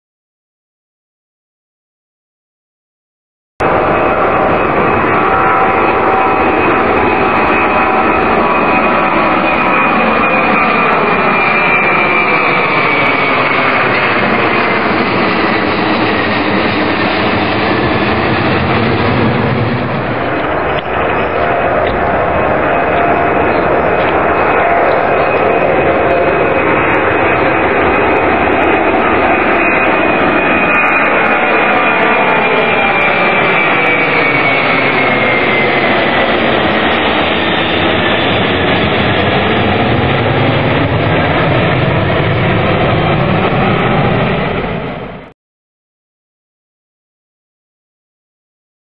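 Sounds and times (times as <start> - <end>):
high engine whine: 3.6 - 45.3
jet engines passing overhead: 3.6 - 45.4
deep rumble: 13.7 - 30.4.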